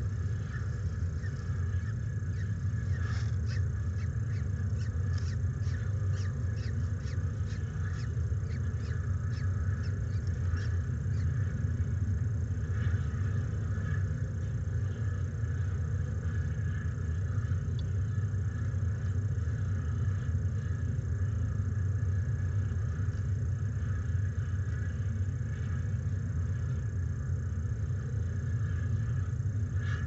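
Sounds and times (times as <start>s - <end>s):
high falcon chirps: 0.0s - 11.4s
steady low rumble: 0.0s - 30.0s.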